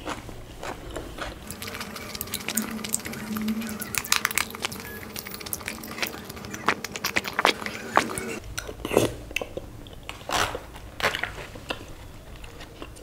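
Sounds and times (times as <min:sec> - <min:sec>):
chewing food: 0:00.0 - 0:13.0
person humming: 0:01.4 - 0:08.4.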